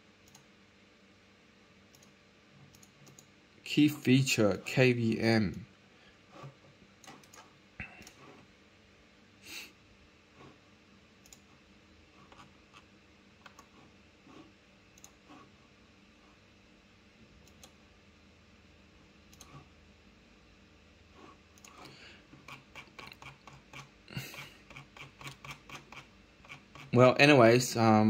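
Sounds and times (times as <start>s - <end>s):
computer mouse clicks: 0.2s - 0.5s, 1.9s - 3.3s, 6.4s - 8.4s, 11.2s - 11.5s, 12.2s - 15.5s, 17.4s - 17.8s, 19.3s - 19.7s, 21.5s - 26.9s.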